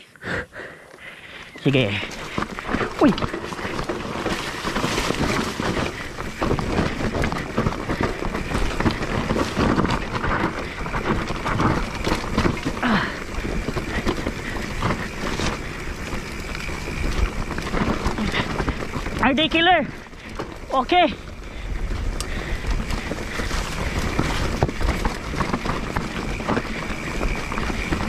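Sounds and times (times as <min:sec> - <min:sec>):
tyres crunching over loose ground: 0:00.9 - 0:28.0
bike clattering over bumps: 0:01.2 - 0:28.0
wind buffeting microphone: 0:02.0 - 0:28.0.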